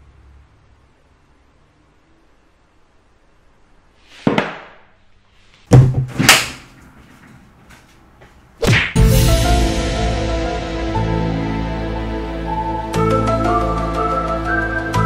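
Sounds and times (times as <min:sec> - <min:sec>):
loud slams or thumps: 0:05.7 - 0:06.6
music: 0:08.9 - 0:15.0.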